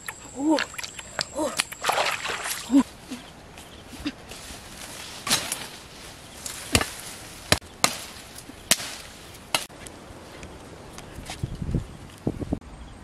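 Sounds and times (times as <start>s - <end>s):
blade chopping wood: 6.7s - 9.7s.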